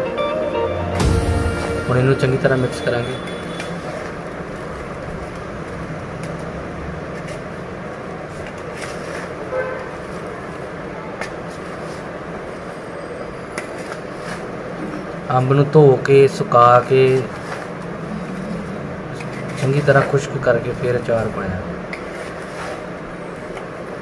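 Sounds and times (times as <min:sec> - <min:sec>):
steady background rumble: 0:16.1 - 0:22.0.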